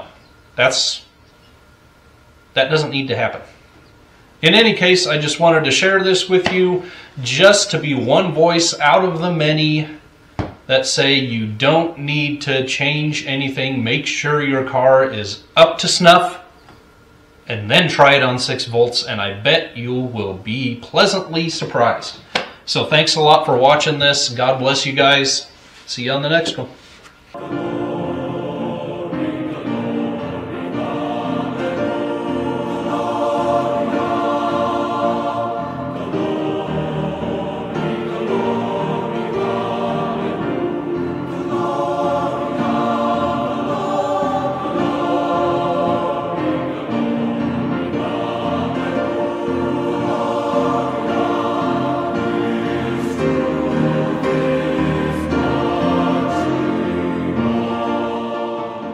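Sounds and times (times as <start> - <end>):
choir singing held chords: 0.0 - 0.9, 27.3 - 58.9.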